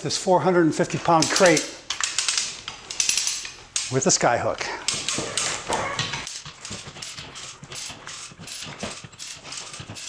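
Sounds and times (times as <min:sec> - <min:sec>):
ratchet clicks: 0:01.2 - 0:04.0.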